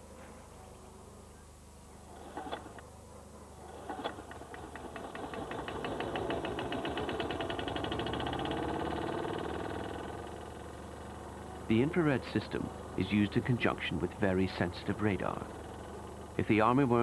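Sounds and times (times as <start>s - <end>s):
small machine pulsing: 3.5s - 17.0s.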